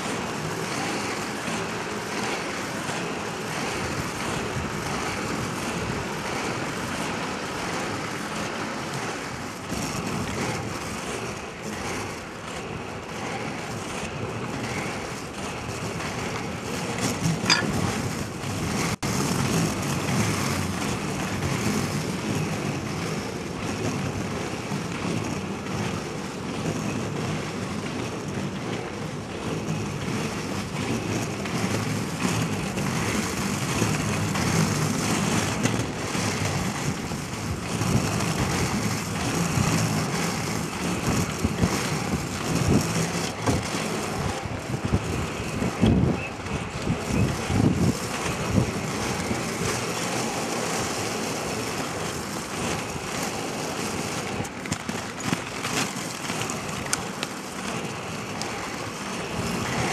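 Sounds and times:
inline skates rolling on asphalt: 0.0s - 59.9s.

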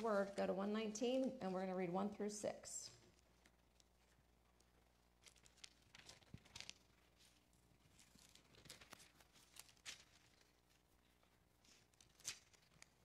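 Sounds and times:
thin pages being turned: 5.2s - 10.9s, 11.7s - 13.0s.

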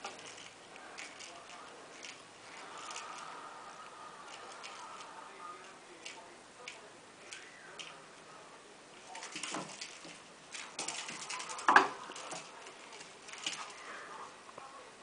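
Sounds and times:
toy and paws tapping on tiles: 9.1s - 13.8s.

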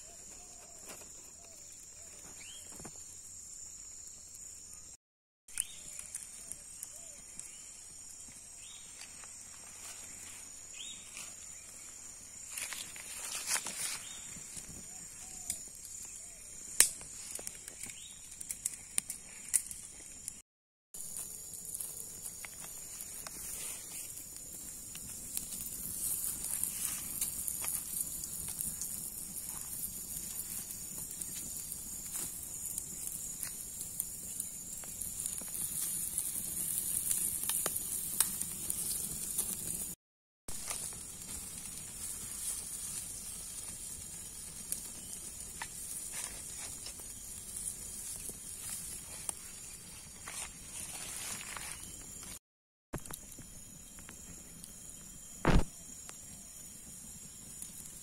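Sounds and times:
wood fire crackling: 5.5s - 20.4s, 21.0s - 52.4s, 53.0s - 58.0s
chicken sizzling: 21.0s - 52.2s.

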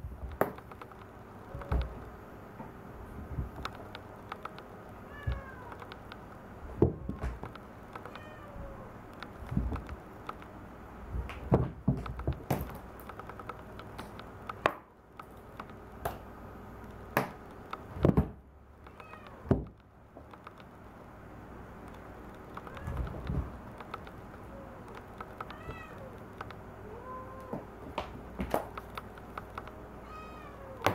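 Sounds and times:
cat meowing: 5.0s - 5.8s, 8.1s - 9.0s, 22.6s - 23.2s, 24.5s - 26.2s, 26.8s - 27.7s, 30.0s - 30.9s.

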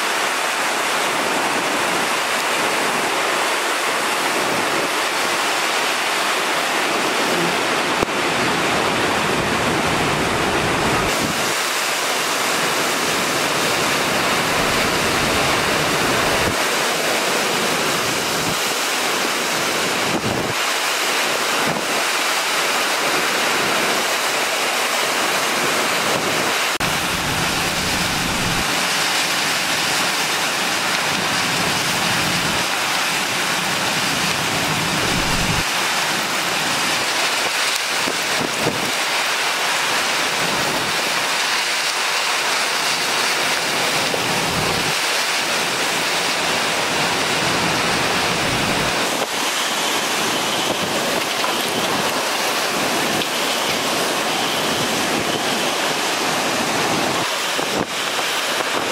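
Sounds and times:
heavy rain rushing: 0.0s - 58.9s
hurricane wind: 0.0s - 58.9s
wind buffeting microphone: 26.2s - 29.0s, 34.4s - 35.7s.

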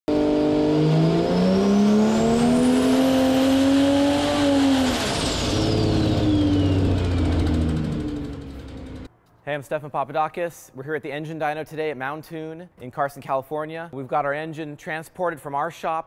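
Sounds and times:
car engine revving: 0.1s - 9.1s
turbo whine: 0.1s - 9.1s.

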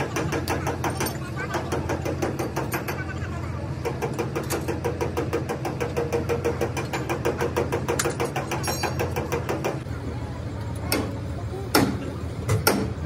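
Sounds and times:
diesel engine idling: 0.0s - 13.0s
metallic clanks: 4.0s - 9.8s.

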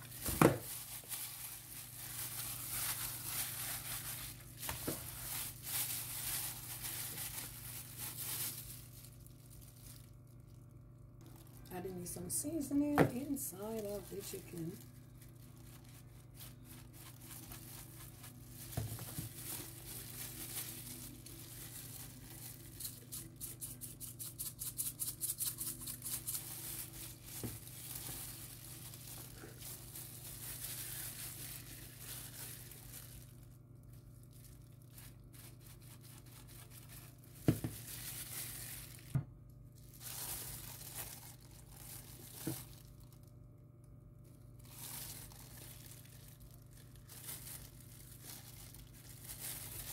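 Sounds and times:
plastic bag crinkling: 0.0s - 49.9s
steady low hum: 0.0s - 49.9s.

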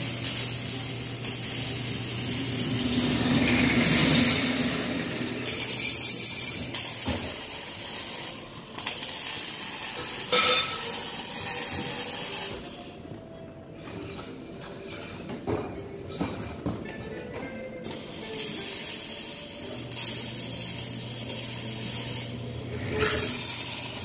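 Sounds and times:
welder crackling hiss: 0.0s - 13.0s, 17.8s - 24.0s.

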